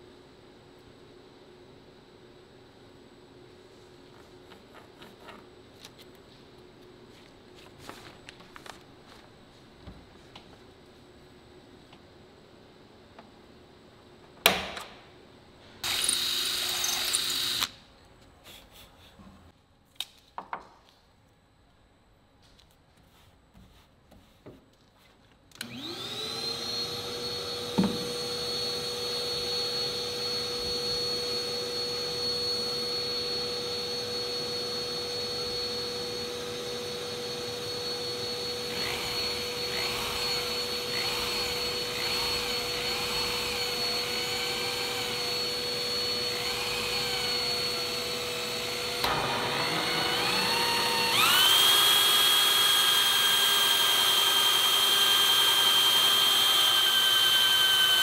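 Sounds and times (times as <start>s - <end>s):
shop vacuum running: 25.6s - 58.0s
hole saw cutting: 38.6s - 58.0s.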